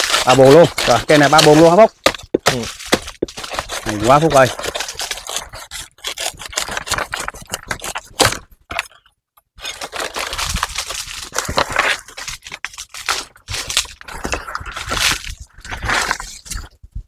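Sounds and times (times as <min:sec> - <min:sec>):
palm fronds crackling and rustling: 0:00.0 - 0:01.9, 0:02.5 - 0:05.5, 0:09.6 - 0:16.7.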